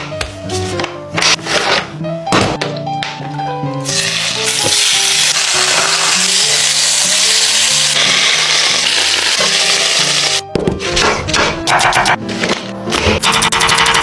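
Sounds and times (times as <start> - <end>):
chicken sizzling in skillet: 3.9 - 10.4.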